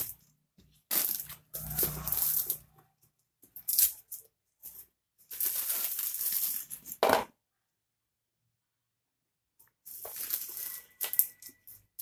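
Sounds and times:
plastic packaging rustling: 0.0 - 2.8, 3.5 - 7.0, 9.8 - 12.0
scrape: 1.6 - 2.8.

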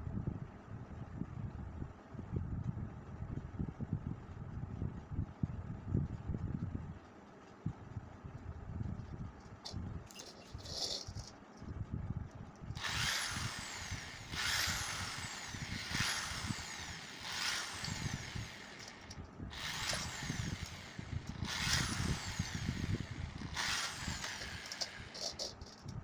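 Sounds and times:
electric drill motor whining: 12.8 - 25.9.

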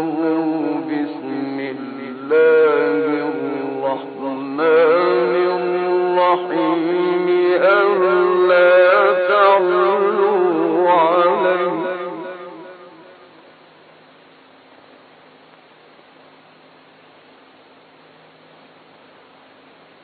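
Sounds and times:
man chanting melodic recitation: 0.0 - 13.2.

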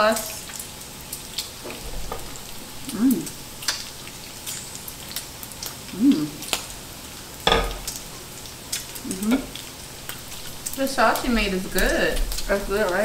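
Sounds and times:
pork sizzling on griddle: 0.0 - 13.0
person humming: 2.8 - 3.4, 5.9 - 6.4, 9.0 - 9.5.

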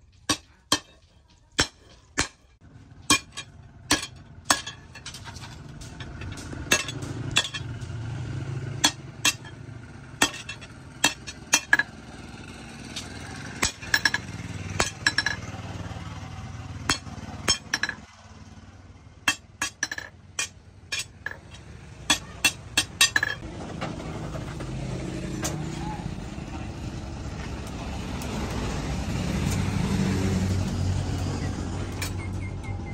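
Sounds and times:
hammer clanking on steel: 0.1 - 8.0, 8.8 - 9.6, 10.2 - 12.0, 12.9 - 15.5, 16.9 - 18.1, 19.3 - 23.4.

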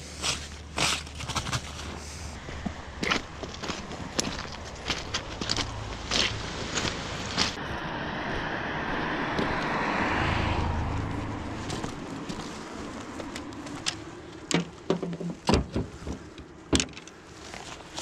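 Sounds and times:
car passing: 2.4 - 14.9
fishing rods knocking and clattering: 13.4 - 18.0.

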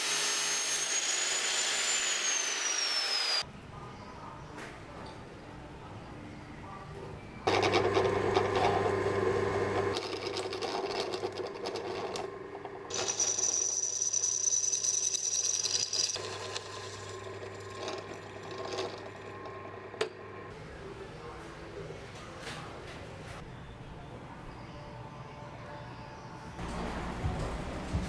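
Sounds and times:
drill bit whining through metal: 0.0 - 3.4
drill press motor humming: 7.5 - 13.8, 15.6 - 20.5.

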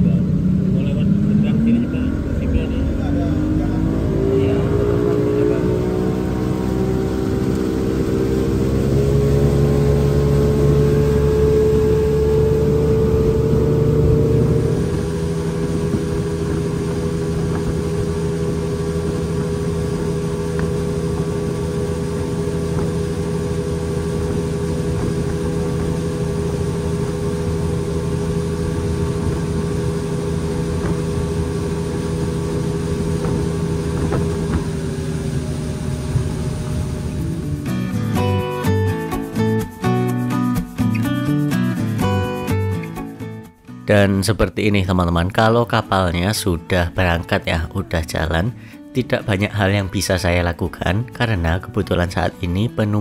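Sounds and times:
wind and water rushing: 0.0 - 38.4
speedboat engine running: 0.0 - 53.0.

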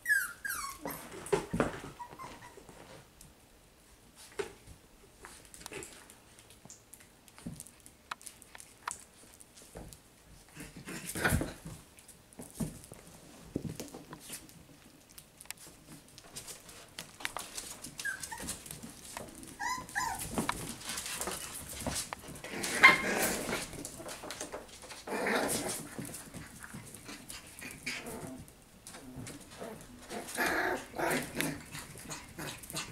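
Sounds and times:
puppies yipping and whimpering: 0.0 - 1.3, 1.9 - 2.7, 18.0 - 18.6, 19.5 - 20.4
puppies yapping: 19.6 - 20.4.

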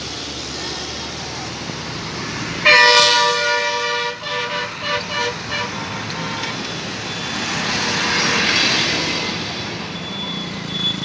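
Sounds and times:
truck driving past: 4.2 - 11.0.

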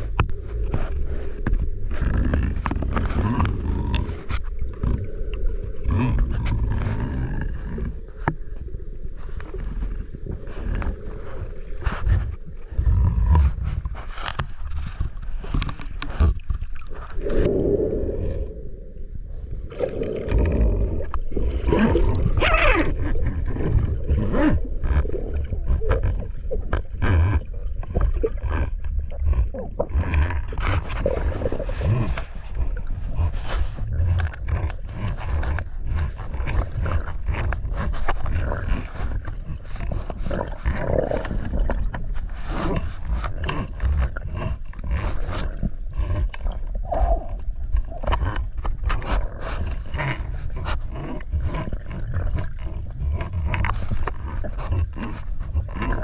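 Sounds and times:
muffled underwater rumble: 0.0 - 56.0
bubbling from breathing out: 15.5 - 37.0, 38.3 - 56.0.

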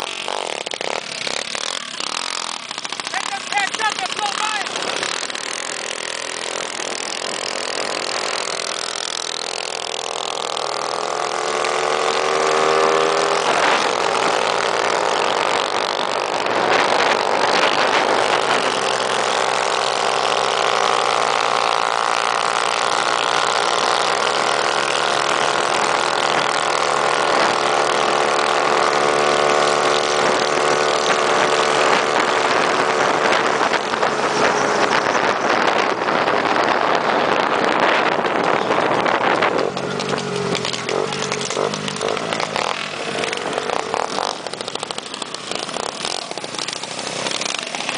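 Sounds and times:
minibike engine revving: 0.0 - 47.9.

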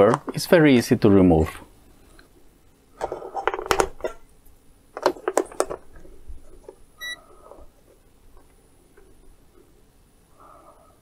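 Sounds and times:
batteries clicking and rattling: 5.0 - 6.8
short high beep: 7.0 - 7.2.

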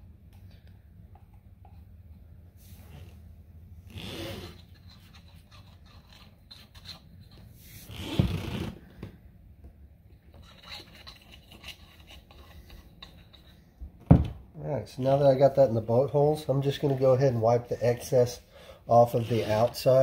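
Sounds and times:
small brush scraping metal: 10.4 - 13.6, 19.1 - 20.0.

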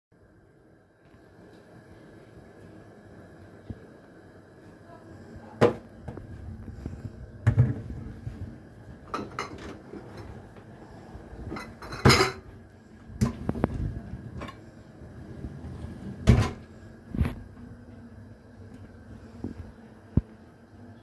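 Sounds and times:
dishwasher racks and dishes clinking: 9.0 - 10.6, 11.4 - 12.5, 15.6 - 16.7.

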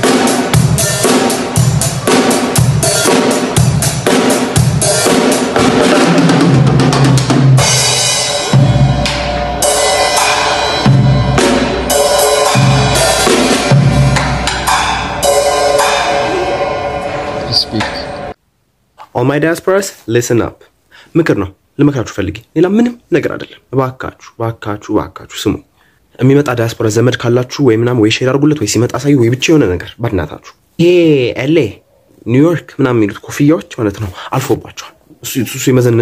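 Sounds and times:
drum kit playing: 0.0 - 18.4.

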